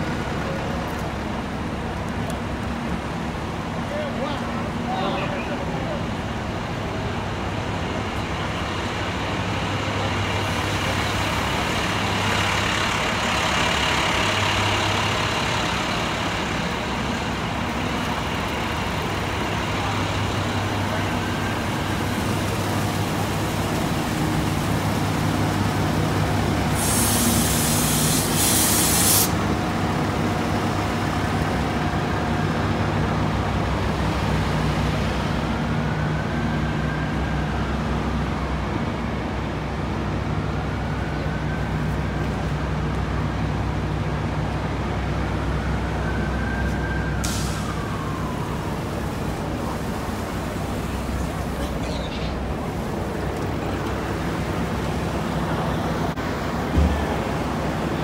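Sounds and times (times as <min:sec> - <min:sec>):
diesel truck engines running: 0:00.0 - 0:58.0
air brake hiss: 0:26.7 - 0:29.4, 0:47.2 - 0:47.8.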